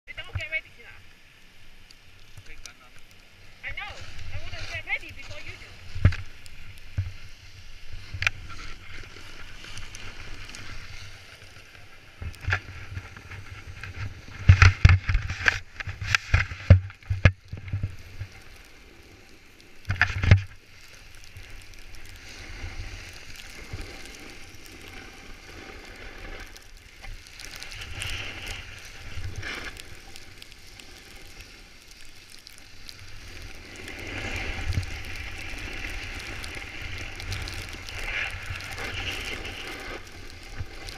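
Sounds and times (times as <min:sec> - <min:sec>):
snowboard scraping over snow: 0:03.2 - 0:40.9
wind on microphone: 0:33.0 - 0:40.9.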